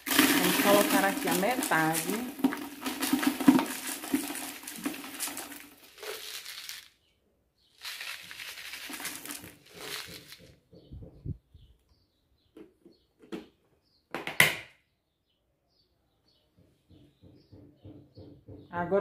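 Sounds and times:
pellets pouring into plastic bucket: 0.0 - 7.0, 7.7 - 10.5.

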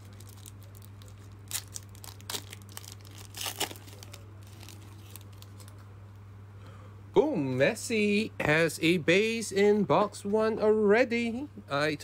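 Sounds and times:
foil wrapper tearing and crinkling: 0.0 - 5.8.

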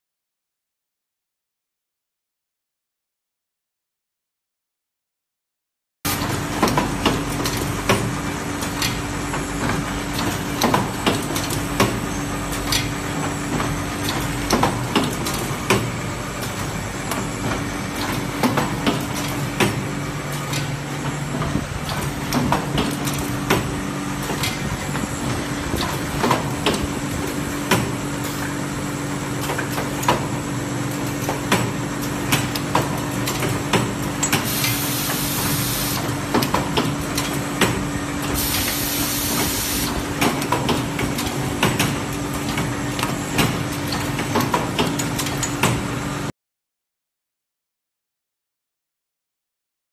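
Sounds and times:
hiss: 38.4 - 39.9.

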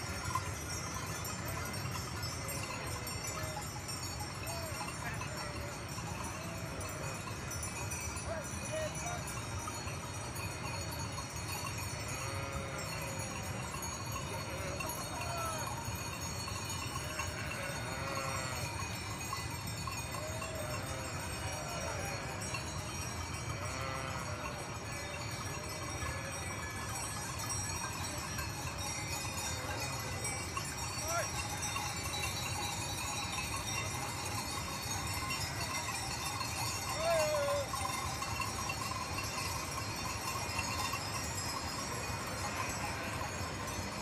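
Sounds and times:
bells jingling: 0.0 - 44.0
sheep bleating: 12.1 - 13.3, 14.4 - 15.7, 17.1 - 18.7, 20.5 - 22.3, 23.5 - 24.6.

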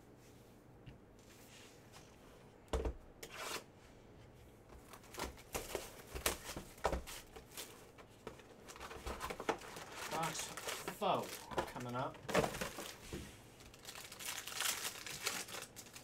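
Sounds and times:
plastic wrap tearing and crinkling: 8.7 - 13.0, 13.6 - 16.0.

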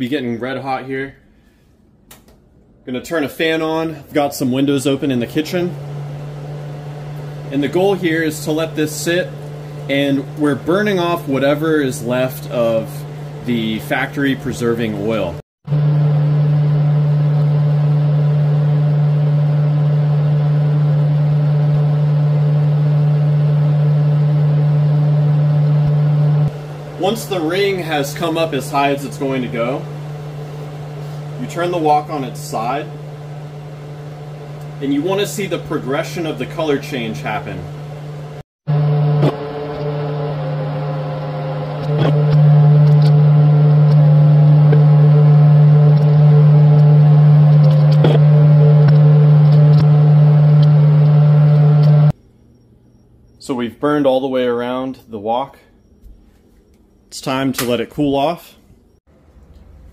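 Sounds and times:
kitchen fan humming: 3.1 - 54.3.

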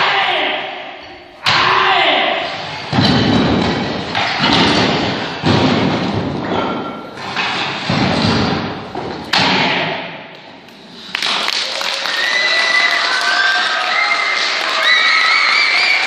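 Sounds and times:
applause and cheers: 11.0 - 16.0.

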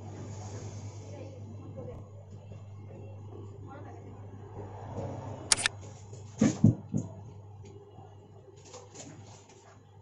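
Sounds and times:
short sharp click: 5.5 - 5.7.

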